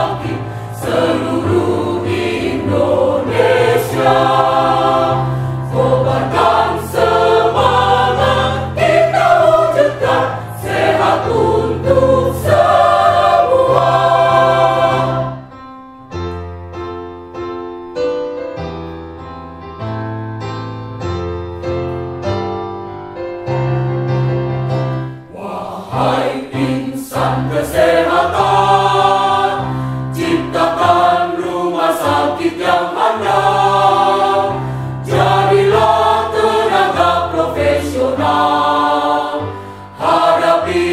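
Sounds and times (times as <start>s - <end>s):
mixed choir singing: 0.0s - 15.5s, 25.3s - 40.9s.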